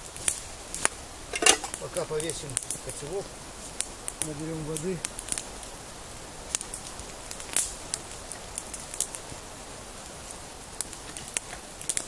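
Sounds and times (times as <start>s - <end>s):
campfire crackling: 0.0s - 12.0s
sharp fire pops: 3.7s - 5.7s, 6.4s - 9.2s.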